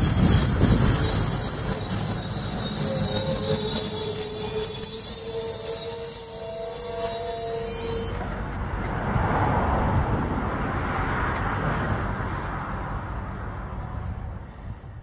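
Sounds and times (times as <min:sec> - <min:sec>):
train wheels squealing on rails: 0:00.0 - 0:08.7
low rumble of slow train: 0:00.0 - 0:15.0.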